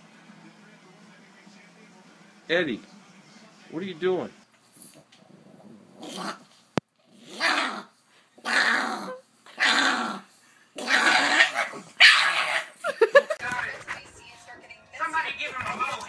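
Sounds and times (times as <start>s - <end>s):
dog growling: 4.9s - 12.8s.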